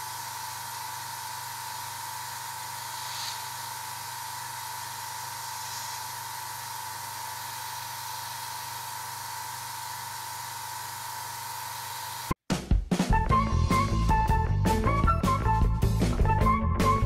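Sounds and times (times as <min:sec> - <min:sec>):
airbrush compressor humming: 0:00.0 - 0:12.4
hiss of air from airbrush: 0:01.6 - 0:08.9.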